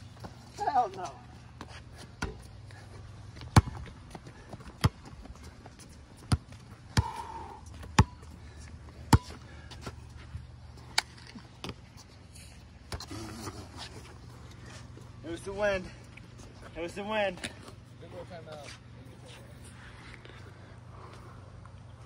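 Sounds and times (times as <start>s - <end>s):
basketball bouncing on concrete: 3.4s - 5.2s, 6.2s - 8.3s, 9.0s - 9.4s.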